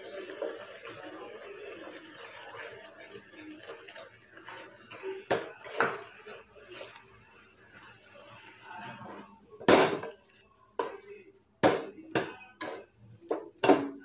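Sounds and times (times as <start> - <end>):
bubbling syrup: 0.0 - 9.0
spatula scraping a wok: 4.4 - 9.4, 10.0 - 11.2, 12.5 - 13.1.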